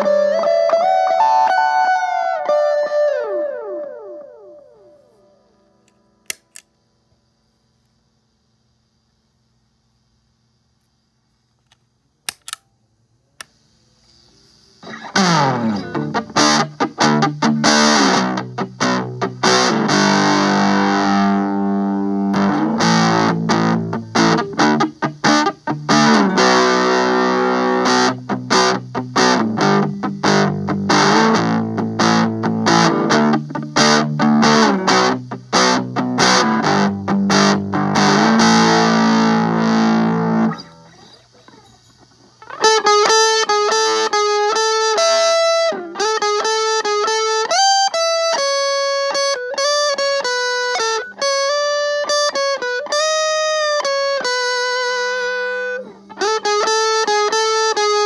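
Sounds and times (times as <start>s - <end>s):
distorted electric guitar chords: 0.0s - 6.6s, 14.7s - 58.0s
small clicks: 5.8s - 6.8s, 11.5s - 12.7s.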